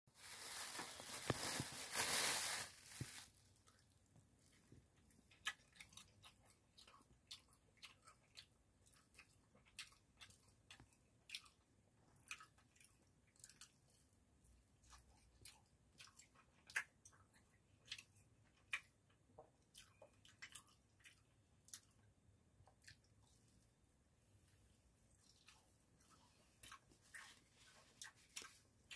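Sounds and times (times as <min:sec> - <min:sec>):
plastic bag crinkling: 0:00.1 - 0:03.4
wet chewing mouth sounds: 0:03.7 - 0:14.2, 0:14.8 - 0:23.5, 0:25.1 - 0:28.9.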